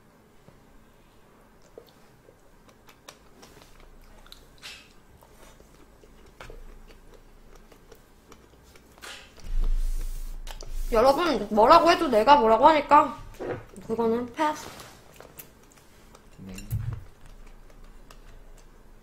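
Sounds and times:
person chewing shrimp: 0:01.5 - 0:10.7, 0:14.9 - 0:19.0.

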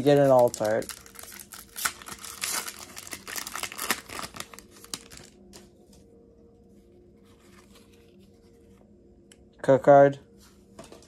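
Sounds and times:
foil wrapper crinkling: 0:00.0 - 0:05.5
cards rustling: 0:00.0 - 0:05.6.

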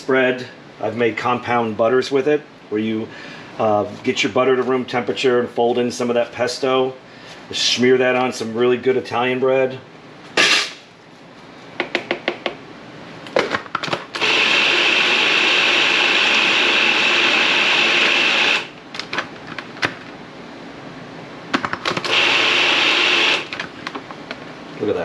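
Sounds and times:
food processor motor running: 0:14.2 - 0:18.8, 0:22.0 - 0:23.5.

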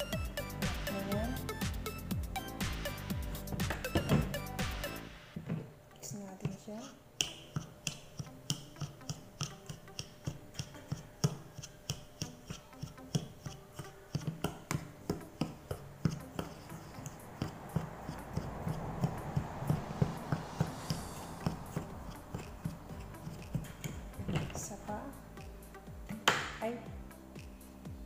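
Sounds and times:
spoon scraping bowl: 0:06.8 - 0:24.2.

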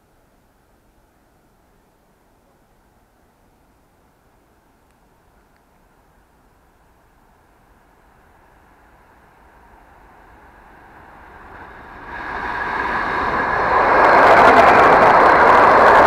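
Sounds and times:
wheels rushing on rails: 0:05.3 - 0:16.0
electric train passing: 0:05.9 - 0:16.0.

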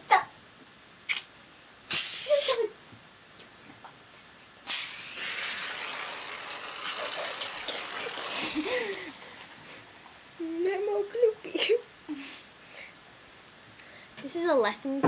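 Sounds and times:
aerosol can spraying hiss: 0:01.9 - 0:02.7, 0:04.7 - 0:06.0.

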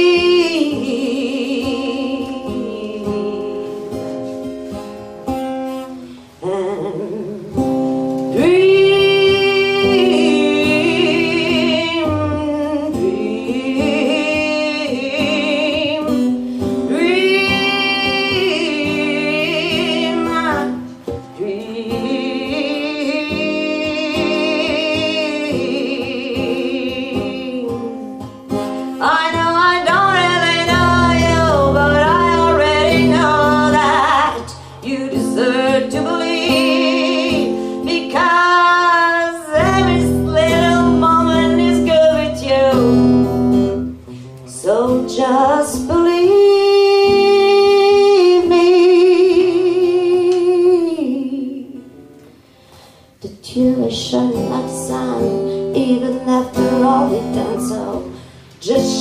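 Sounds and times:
woman singing: 0:00.0 - 0:52.2, 0:53.2 - 0:59.0
acoustic guitar: 0:00.0 - 0:59.0.

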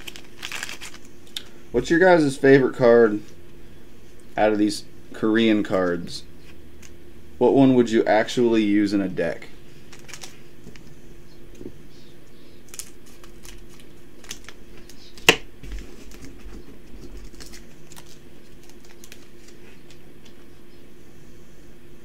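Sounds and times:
foil pack crinkling and clicks: 0:00.0 - 0:01.6, 0:09.9 - 0:10.9, 0:12.6 - 0:20.5
faint steady hum: 0:00.0 - 0:22.0.

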